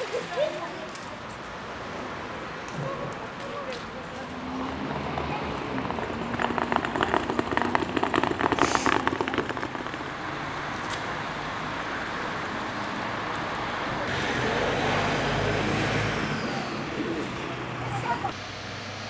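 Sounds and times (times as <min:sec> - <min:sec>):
street traffic noise: 0:00.0 - 0:19.0
vehicle low rumble: 0:00.8 - 0:19.0
suitcase wheels rattling on paving: 0:03.9 - 0:11.0.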